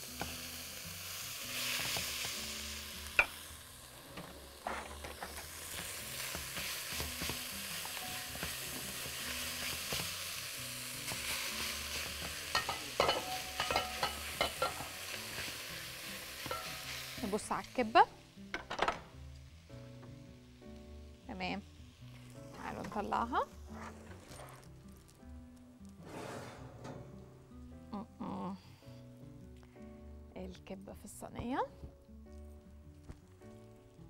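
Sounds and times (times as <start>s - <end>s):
rice and onion sizzling in oil: 0.0s - 26.0s
spatula scraping a pot: 23.5s - 24.7s.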